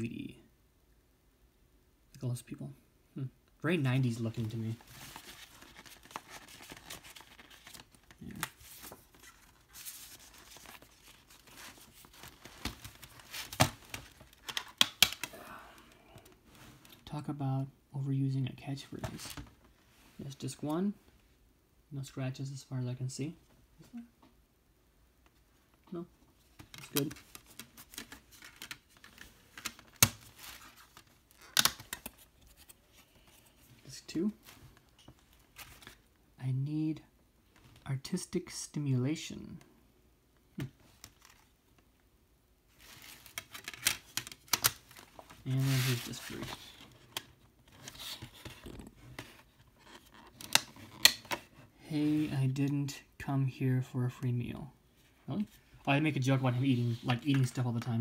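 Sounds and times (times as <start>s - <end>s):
paper rustling and crinkling: 4.4s - 15.3s, 26.5s - 33.8s, 42.7s - 52.2s
plastic disc case clicking: 12.2s - 15.3s, 31.4s - 32.2s.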